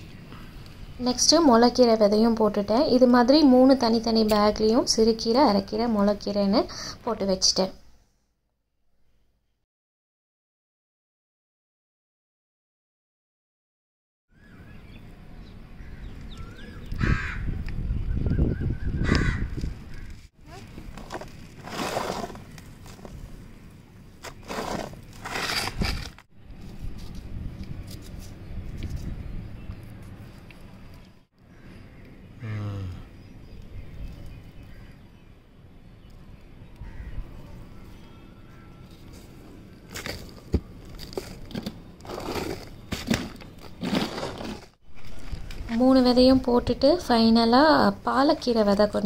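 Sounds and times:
crow cawing: 17.0s - 17.5s, 19.0s - 20.1s, 36.8s - 37.2s
soil and plastic crunching: 20.4s - 29.0s, 38.9s - 46.0s
rustling handling noise: 20.5s - 23.5s, 38.9s - 46.0s.

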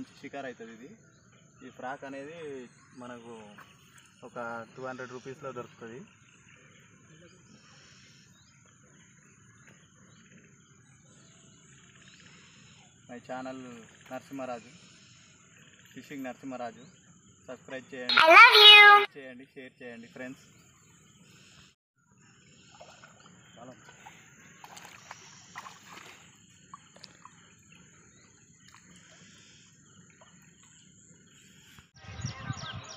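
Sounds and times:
water sloshing: 22.7s - 29.2s.

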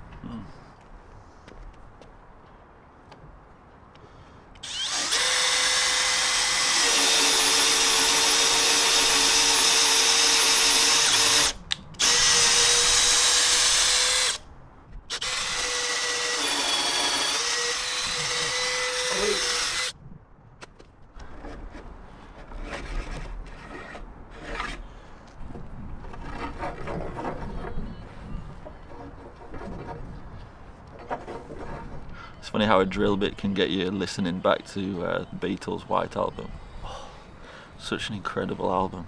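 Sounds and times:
electric drill whining: 4.6s - 14.4s, 15.1s - 19.9s.

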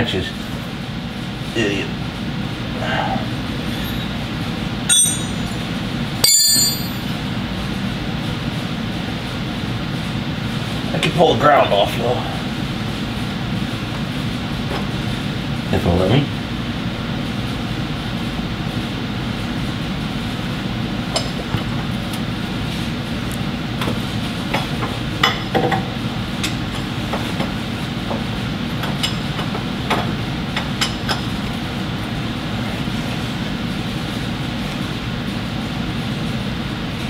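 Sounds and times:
steady background hum: 0.0s - 37.0s
hand tool clinking on metal nuts: 4.9s - 5.6s, 6.2s - 7.1s.

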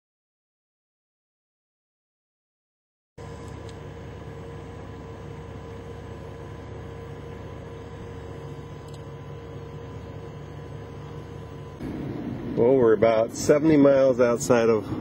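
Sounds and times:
faint high whine: 3.2s - 15.0s
vehicle idling hum: 3.2s - 15.0s.

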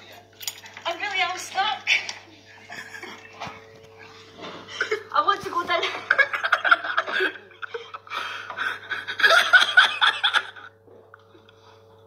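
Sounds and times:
people laughing: 2.6s - 3.5s, 4.6s - 10.8s.

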